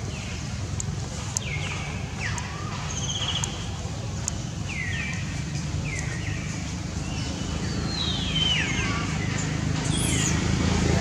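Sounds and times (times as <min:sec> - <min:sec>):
animal chirping: 0:09.8 - 0:10.4.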